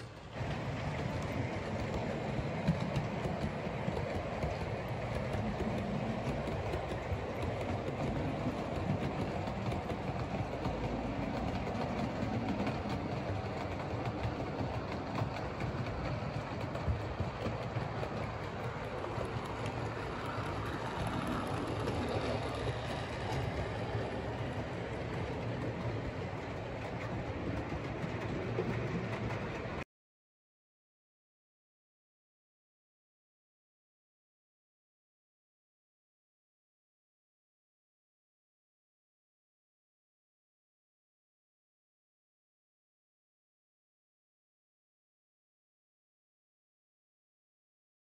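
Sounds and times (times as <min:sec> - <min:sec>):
model trains running: 0:00.0 - 0:29.8
wheels clicking over rail joints: 0:00.0 - 0:29.8.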